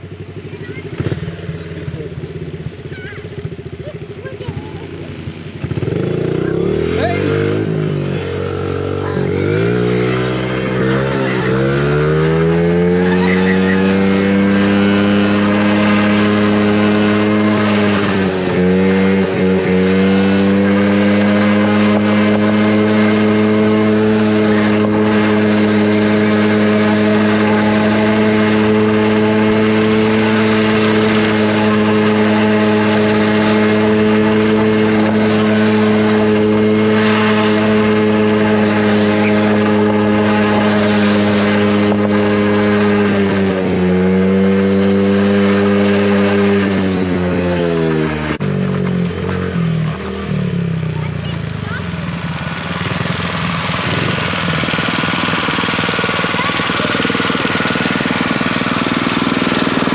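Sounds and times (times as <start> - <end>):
off-road vehicle engine running hard: 0.0 - 59.9.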